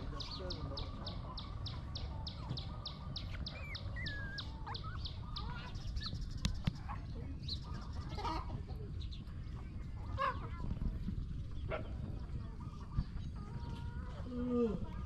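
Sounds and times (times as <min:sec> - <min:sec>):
chickens clucking: 0:00.0 - 0:15.0
high bird chirps: 0:00.2 - 0:06.8
wavering whistled bird calls: 0:00.3 - 0:06.6.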